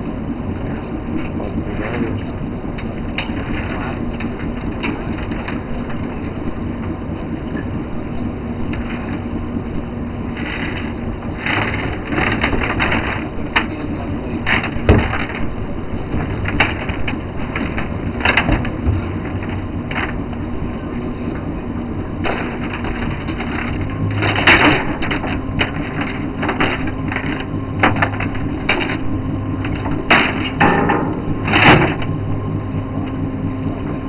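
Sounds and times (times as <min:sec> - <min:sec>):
boat engine and machinery drone: 0:00.0 - 0:34.0
sharp knocks and clanks: 0:14.5 - 0:15.6, 0:22.2 - 0:32.4.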